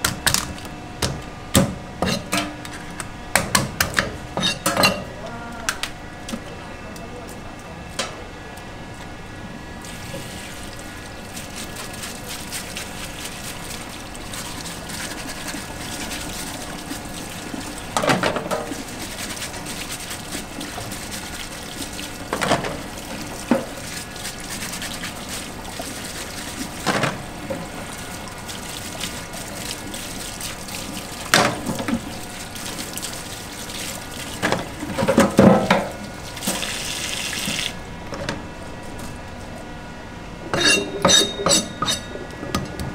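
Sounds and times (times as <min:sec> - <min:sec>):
tap water running into a sink: 0:09.9 - 0:37.8
brush scrubbing a crab: 0:11.4 - 0:17.8, 0:18.6 - 0:22.3, 0:23.1 - 0:26.8.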